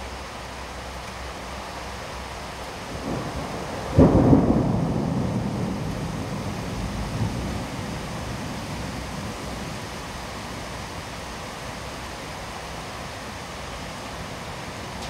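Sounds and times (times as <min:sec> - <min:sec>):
heavy rain hissing: 0:00.0 - 0:15.0
thunder clap and rumble: 0:03.0 - 0:09.9.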